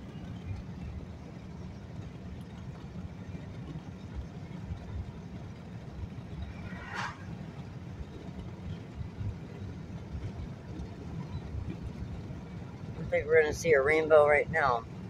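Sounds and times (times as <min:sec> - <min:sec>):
road and engine rumble: 0:00.0 - 0:15.0
passing car whoosh: 0:06.0 - 0:09.1.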